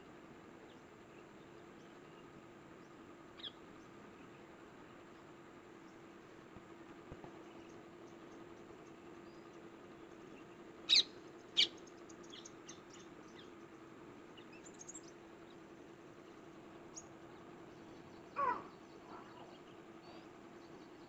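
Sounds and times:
low steady hum: 0.0 - 21.0
shrill parakeet calls: 3.4 - 3.6, 10.9 - 12.5, 18.3 - 19.6
faint chirps: 7.4 - 21.0.

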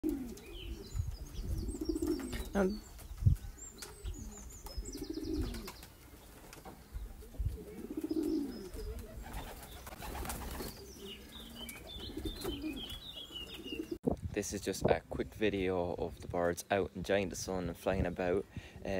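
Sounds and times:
pigeons cooing: 0.0 - 14.0
small birds chirping: 0.0 - 14.0.

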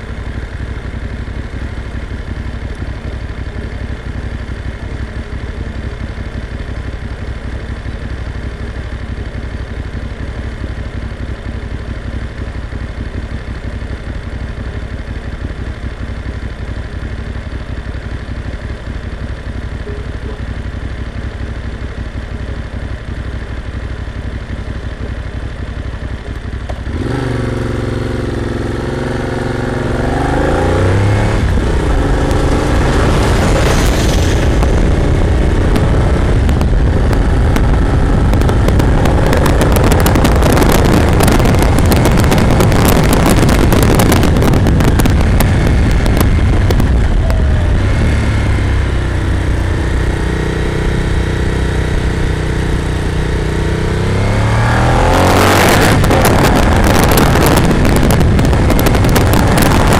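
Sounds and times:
motorcycle engine: 0.0 - 59.9
wind noise on microphone: 29.8 - 59.9.

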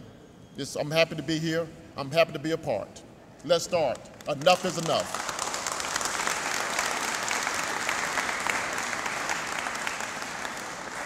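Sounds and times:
people applauding: 3.9 - 11.0.

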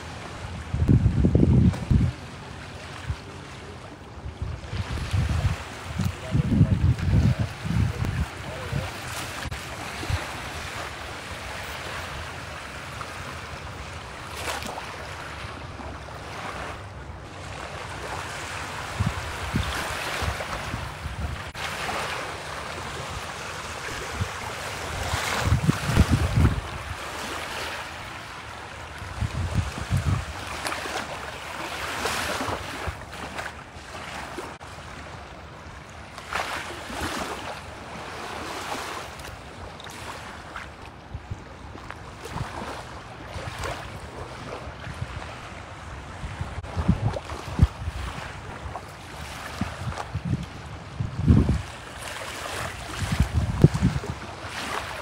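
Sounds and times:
wind buffeting microphone: 0.0 - 3.4, 4.1 - 12.8, 18.0 - 31.1, 40.7 - 55.0
small waves lapping on shore: 0.0 - 55.0.

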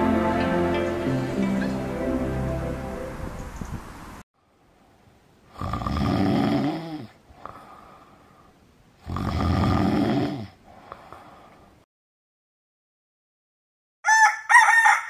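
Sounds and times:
person snoring: 5.5 - 7.8, 9.0 - 11.2.

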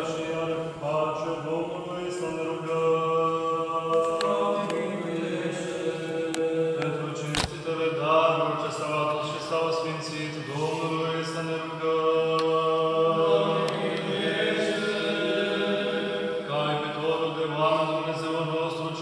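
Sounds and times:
voices chanting: 10.5 - 19.0.

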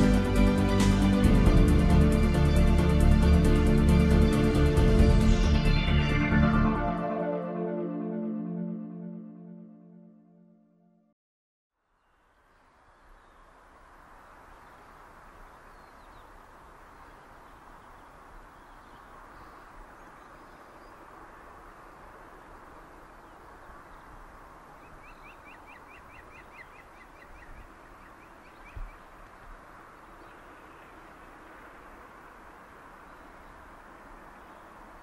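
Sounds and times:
outdoor background noise: 11.7 - 35.0
small bird chirping: 24.8 - 29.2.

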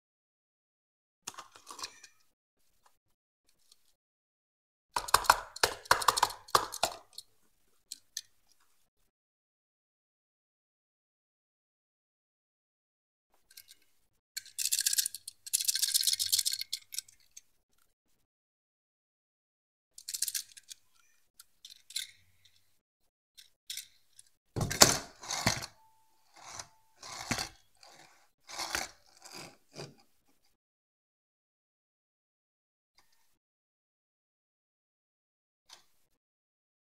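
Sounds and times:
toy car rattling and scraping: 1.3 - 2.2, 13.5 - 17.5, 20.0 - 22.6, 23.4 - 30.1
toy car knocking on cardboard: 5.0 - 7.0, 24.6 - 25.7.

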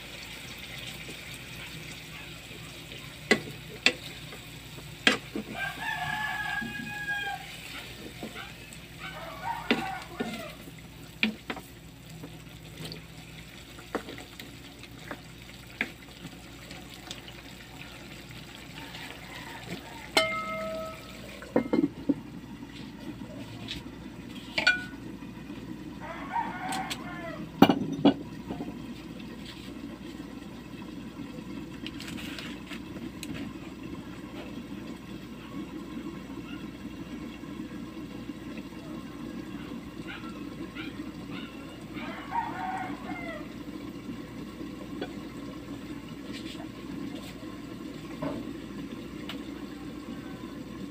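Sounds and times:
sauce bubbling: 0.0 - 50.9
metal lid ringing: 20.2 - 21.9, 24.6 - 25.0.

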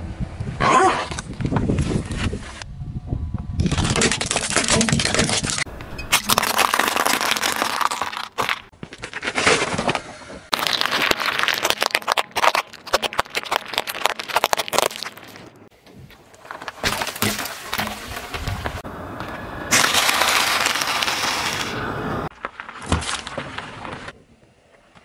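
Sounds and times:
tyre crushing plastic objects: 3.6 - 18.8.

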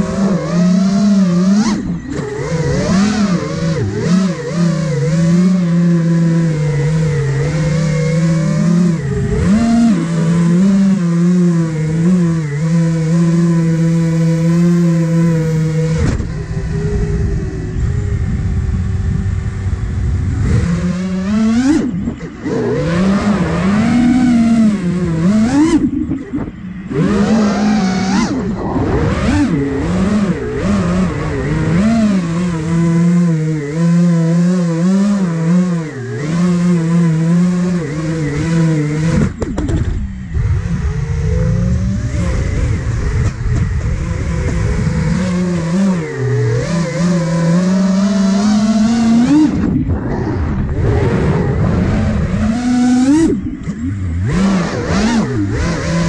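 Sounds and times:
quadcopter motors whining: 0.0 - 56.0.

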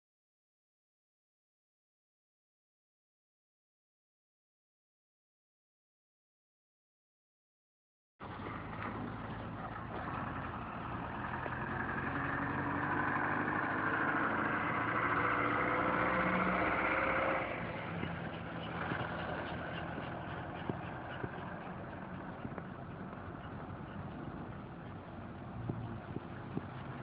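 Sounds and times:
vehicle engine running: 8.2 - 27.0.

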